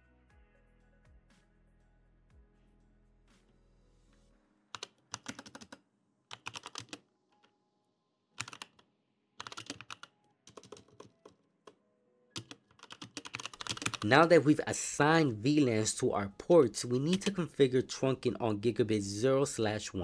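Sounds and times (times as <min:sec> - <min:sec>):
typing on computer keyboard: 0:04.7 - 0:07.5, 0:08.4 - 0:11.8, 0:12.4 - 0:14.1, 0:17.0 - 0:17.4.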